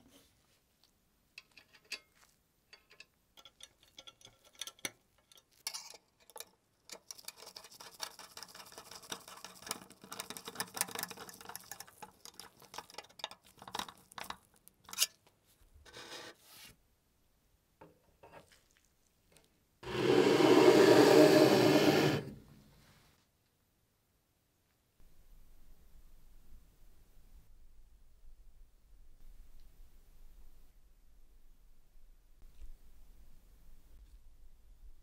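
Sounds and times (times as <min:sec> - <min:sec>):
screw turning into wood: 0:19.8 - 0:22.4.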